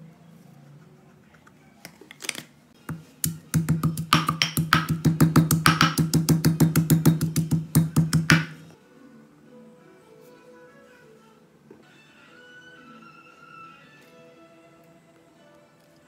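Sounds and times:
stone pestle pounding in mortar: 2.9 - 8.6.

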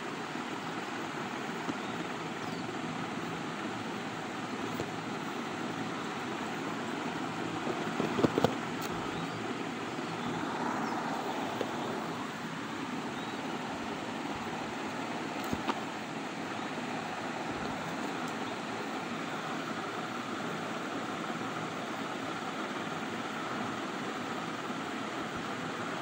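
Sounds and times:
steady rushing noise: 2.9 - 23.7.

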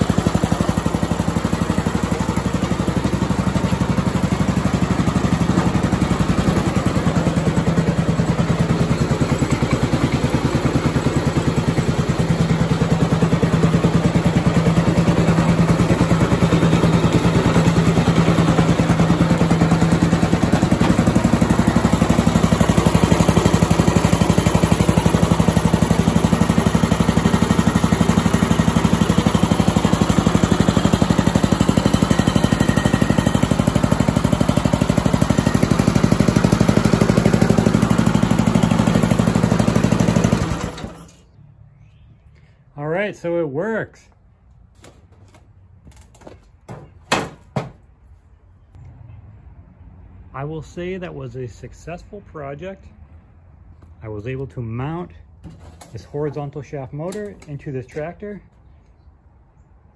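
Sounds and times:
small engine running: 0.0 - 41.3.

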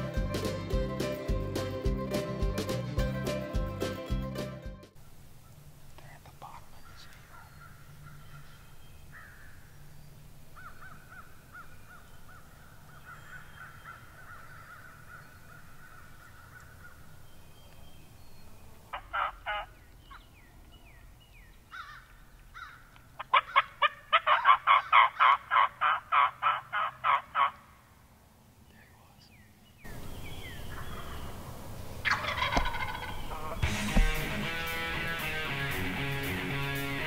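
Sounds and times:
bird trilling: 6.8 - 27.5, 29.8 - 34.4
turkey calls: 18.9 - 27.8, 29.8 - 35.5.

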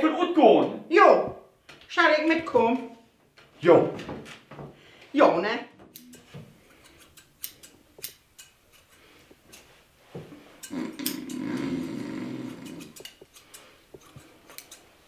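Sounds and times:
scissors snipping hair: 5.9 - 9.8, 10.5 - 15.0.

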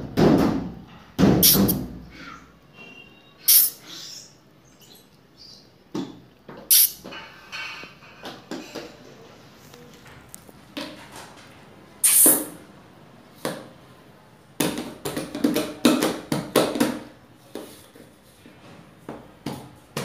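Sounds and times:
short loud hiss: 1.4 - 1.9, 2.8 - 3.8, 6.7 - 7.0, 12.0 - 12.6
hands slapping plastic bowl: 14.6 - 17.8.

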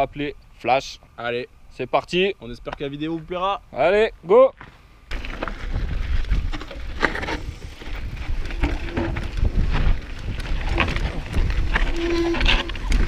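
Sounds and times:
bike rattling over rock: 4.6 - 13.0
bike tyres rumbling: 4.6 - 13.0
wind buffeting microphone: 5.3 - 13.0
short squeal: 11.8 - 12.9.

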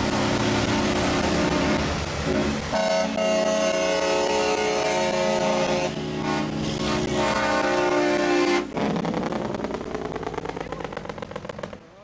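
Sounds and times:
diesel engine passing: 0.0 - 12.0
truck air horn blast: 0.3 - 8.8.

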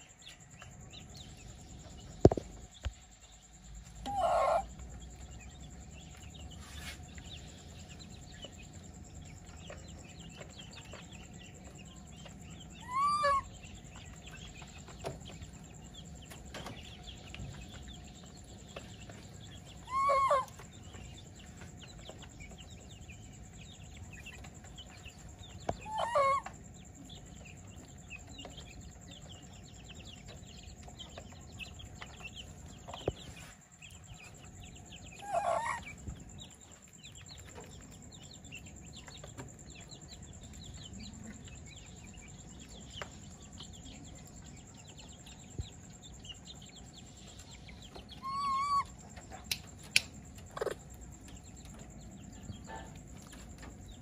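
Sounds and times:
faint chirping: 0.0 - 54.0
low background noise: 0.0 - 54.0
short pitched animal calls: 4.0 - 4.7.

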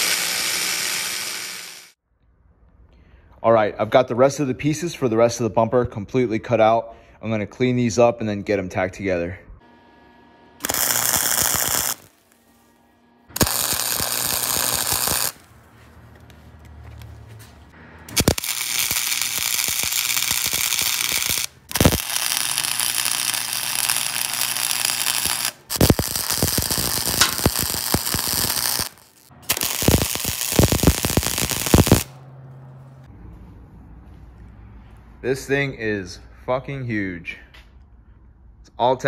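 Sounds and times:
welder arc crackling: 0.0 - 2.0, 10.6 - 15.6, 18.1 - 32.2.

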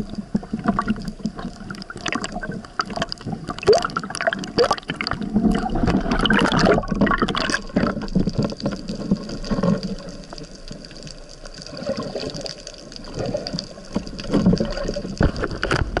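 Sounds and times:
water sloshing and bubbling: 0.0 - 16.0
small clicks and knocks: 7.8 - 11.5, 12.6 - 16.0.

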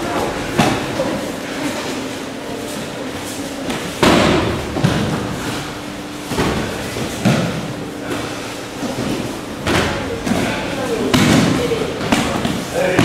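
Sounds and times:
bodies thudding on mats: 3.7 - 13.0.

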